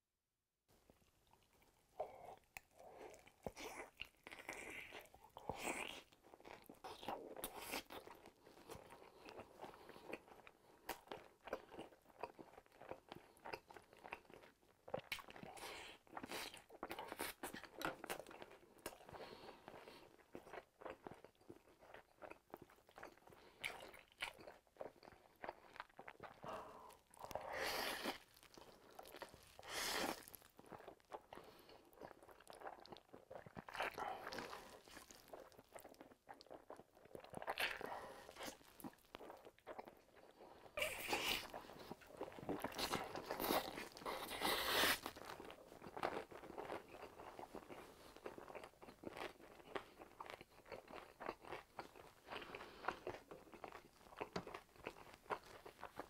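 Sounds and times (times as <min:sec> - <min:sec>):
chewing: 0:00.9 - 0:56.0
noodles slurped: 0:40.3 - 0:45.4.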